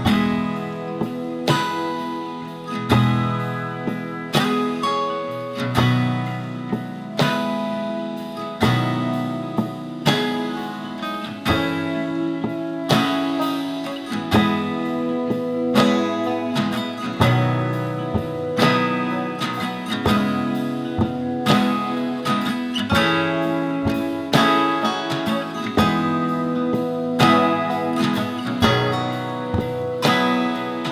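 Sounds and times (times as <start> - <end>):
strummed acoustic guitar: 0.0 - 30.9.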